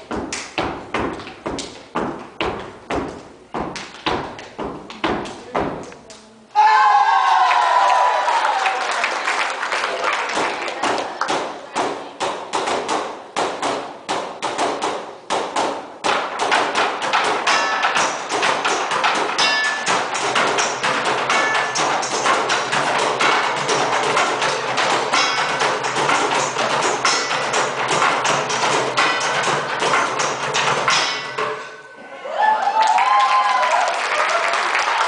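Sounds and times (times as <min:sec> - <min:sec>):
drums and buckets beating: 0:00.0 - 0:06.0, 0:10.2 - 0:31.9.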